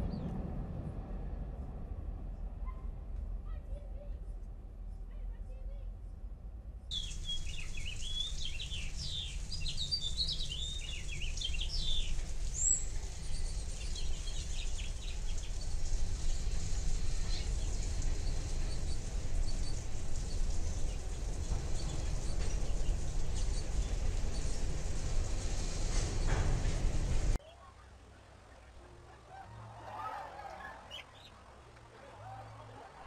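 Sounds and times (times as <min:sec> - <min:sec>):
freight train rumbling past: 0:00.0 - 0:04.8, 0:06.3 - 0:27.4
bird chirping: 0:06.8 - 0:26.5, 0:30.4 - 0:31.5.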